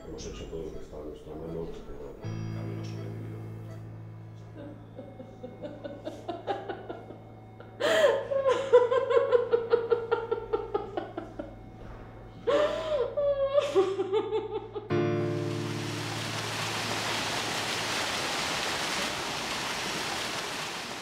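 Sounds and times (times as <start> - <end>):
woman sobbing: 4.6 - 11.6, 12.4 - 15.0
woman wailing: 12.5 - 14.8.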